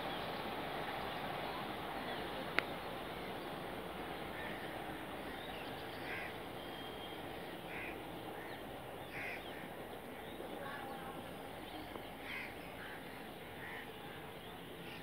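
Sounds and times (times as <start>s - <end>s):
steady background noise: 0.0s - 15.0s
crows cawing: 6.0s - 6.4s, 7.7s - 9.6s, 12.2s - 13.9s.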